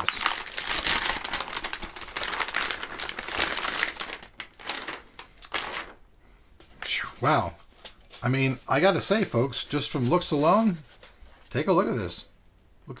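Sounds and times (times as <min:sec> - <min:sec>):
plastic bag crinkling: 0:00.0 - 0:06.0.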